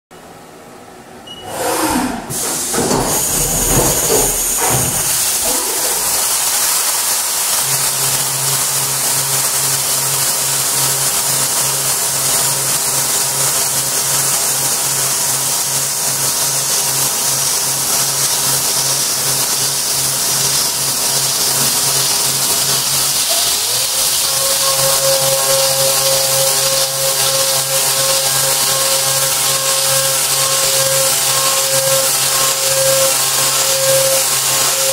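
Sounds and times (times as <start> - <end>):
end mill cutting metal whine: 1.4 - 6.7, 20.0 - 34.9
milling machine spindle running: 1.4 - 34.9.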